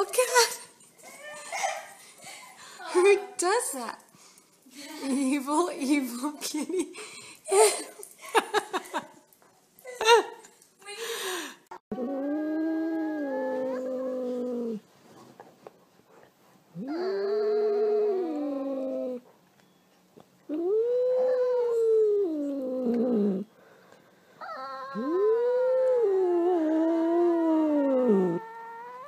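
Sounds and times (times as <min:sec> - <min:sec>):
pet howling: 0:11.9 - 0:14.8, 0:16.8 - 0:19.2, 0:24.4 - 0:29.0.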